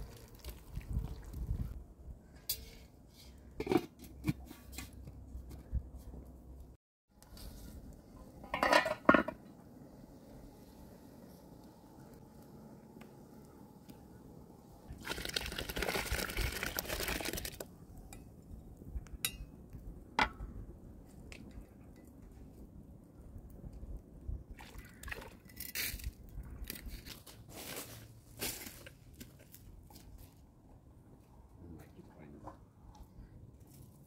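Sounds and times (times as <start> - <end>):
liquid pouring into pot: 14.9 - 17.6.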